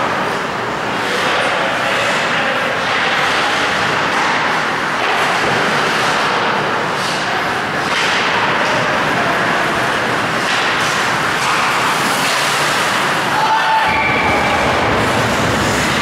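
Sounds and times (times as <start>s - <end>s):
ice hockey game noise: 0.0s - 16.0s.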